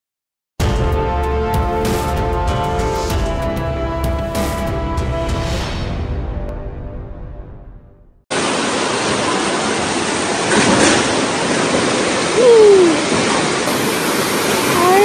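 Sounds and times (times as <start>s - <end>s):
music: 0.6s - 8.2s
floodwater rushing: 8.3s - 15.0s.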